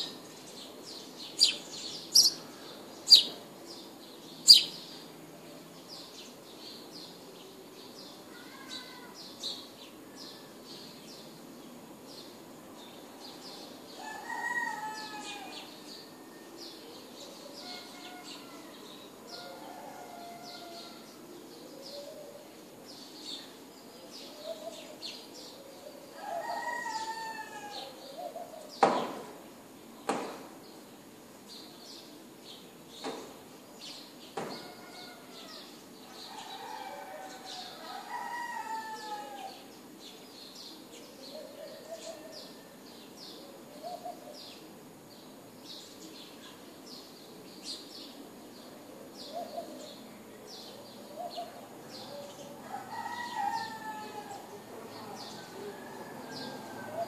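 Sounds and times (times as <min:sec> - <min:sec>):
small birds chirping: 0:00.0 - 0:05.1
roosters crowing: 0:14.0 - 0:16.1, 0:17.6 - 0:21.2, 0:26.1 - 0:28.0, 0:34.4 - 0:39.7, 0:52.0 - 0:57.0.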